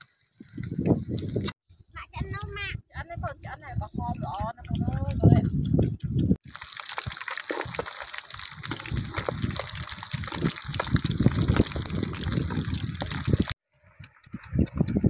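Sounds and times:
oil popping and crackling: 0.4s - 1.6s, 6.4s - 13.6s
fish frying in hot oil: 6.4s - 13.6s.

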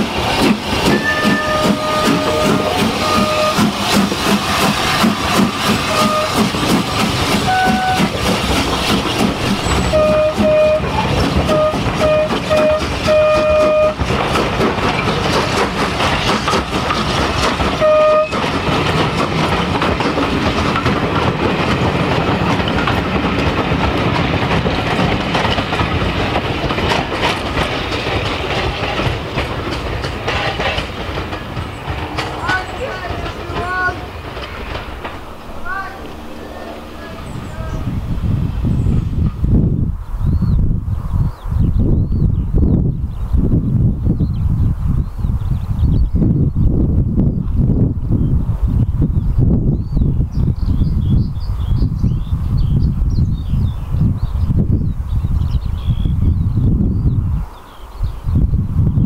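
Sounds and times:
coaches clattering over rail joints: 0.0s - 39.5s
steam locomotive chuffing: 0.0s - 39.6s.

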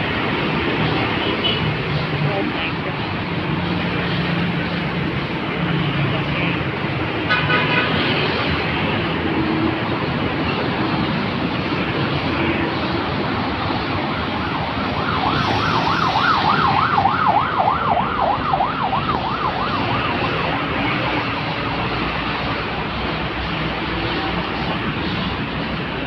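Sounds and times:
road traffic: 0.0s - 26.0s
emergency siren yelping: 13.1s - 22.4s.

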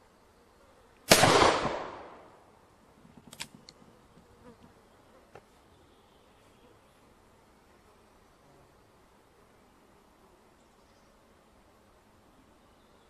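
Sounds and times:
revolver gunshot: 1.1s - 2.3s.

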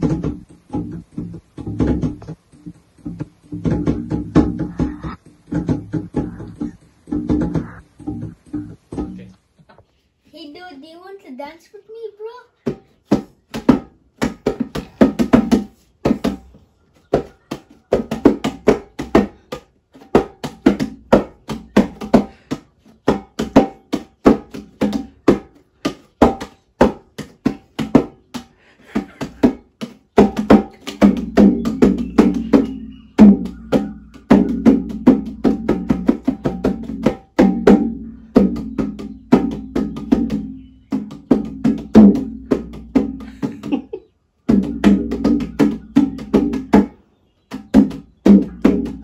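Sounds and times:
hand drum strokes: 0.0s - 9.4s, 44.5s - 49.0s.

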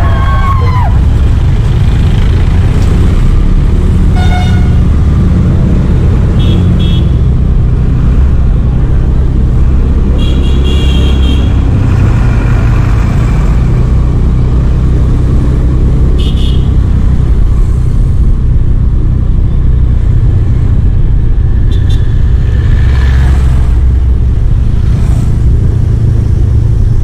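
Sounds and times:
vehicle engine and road rumble: 0.0s - 27.0s
vehicle horns honking: 4.1s - 4.8s, 6.4s - 7.2s, 10.2s - 11.6s, 16.2s - 16.7s.

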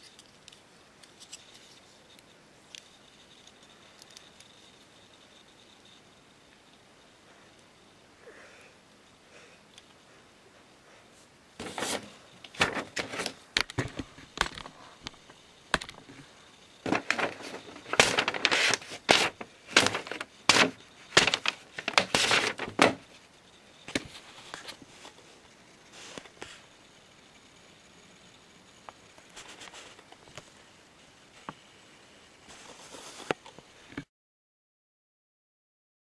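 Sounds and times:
paper ripping and crinkling: 11.6s - 14.7s, 16.9s - 23.0s.

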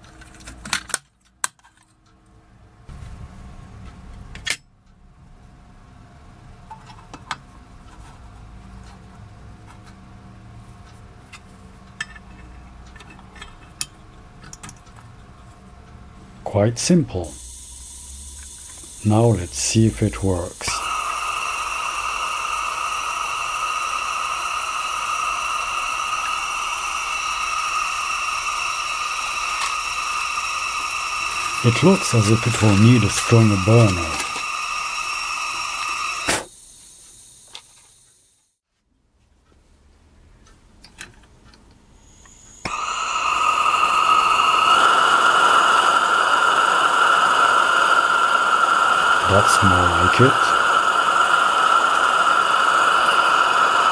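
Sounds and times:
gas burner hissing: 16.4s - 38.5s, 41.9s - 53.9s.

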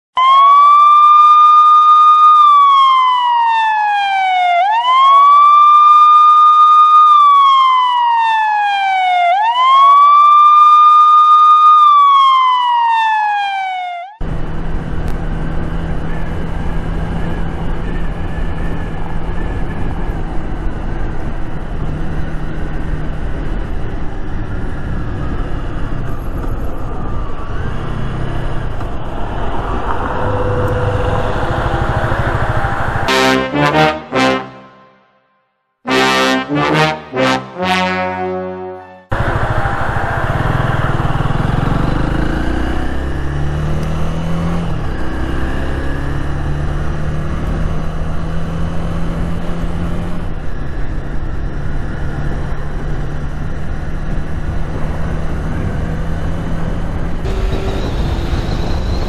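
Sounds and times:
police siren wailing: 0.2s - 14.6s, 15.3s - 35.0s, 35.9s - 51.5s, 54.7s - 59.0s
wind noise: 15.2s - 33.1s, 54.2s - 59.0s
motorcycle engine running: 30.3s - 33.1s, 39.1s - 43.4s, 50.4s - 59.0s.

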